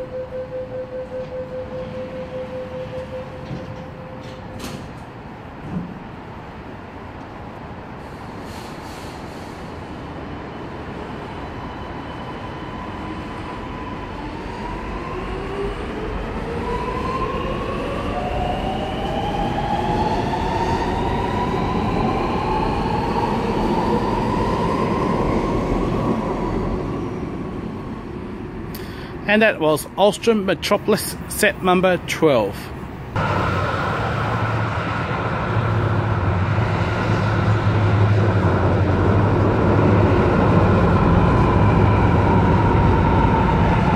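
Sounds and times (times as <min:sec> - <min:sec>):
train rumble: 0:00.0 - 0:12.5, 0:13.2 - 0:43.9.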